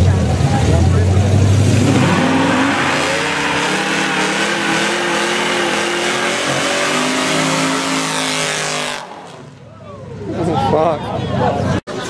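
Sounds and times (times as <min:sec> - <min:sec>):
car engine revving: 0:00.0 - 0:09.6.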